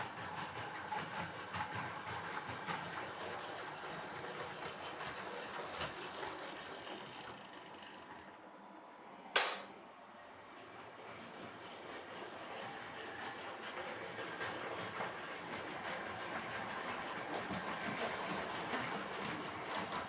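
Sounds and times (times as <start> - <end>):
wheels clicking on rails: 0.0 - 8.6, 10.4 - 20.0
sharp click: 9.4 - 9.7.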